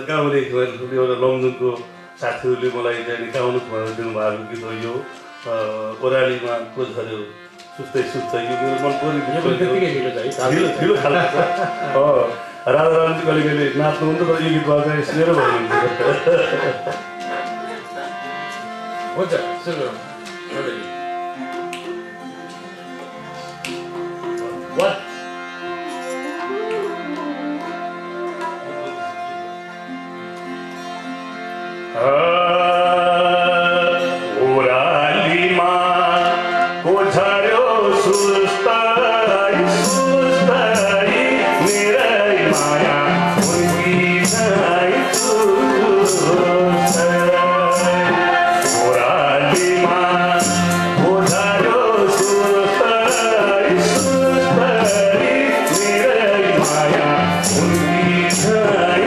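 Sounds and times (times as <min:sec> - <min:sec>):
man singing: 0:00.0 - 0:18.4, 0:31.9 - 0:59.0
harmonium: 0:00.0 - 0:59.0
light percussion beat: 0:39.7 - 0:59.0.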